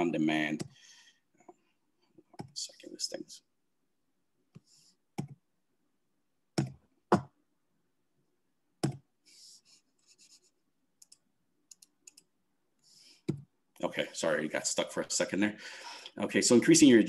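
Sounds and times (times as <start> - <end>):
computer mouse clicks: 11.0 - 12.3.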